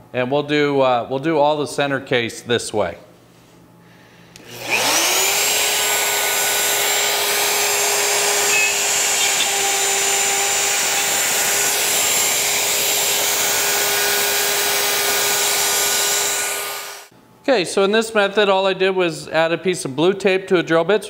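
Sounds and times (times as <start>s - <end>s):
router whining: 4.4s - 17.1s.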